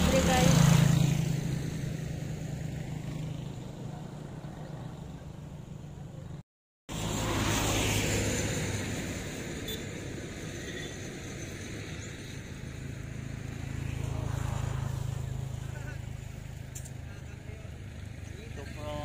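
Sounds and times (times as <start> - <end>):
vehicles passing on highway: 0.0 - 19.0.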